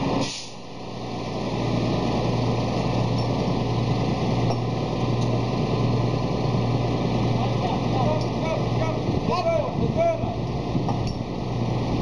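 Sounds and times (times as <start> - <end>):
crane engine humming: 0.0 - 12.0.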